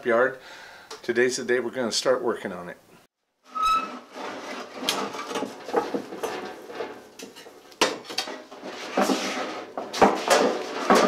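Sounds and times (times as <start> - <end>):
metal clanking and rattling: 4.0 - 11.0.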